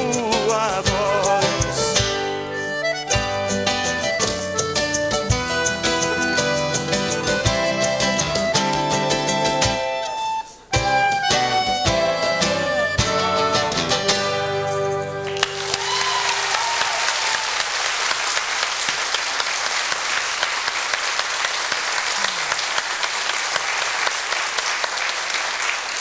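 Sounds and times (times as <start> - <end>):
band with accordion and flute: 0.0 - 16.8
audience applause: 15.2 - 26.0.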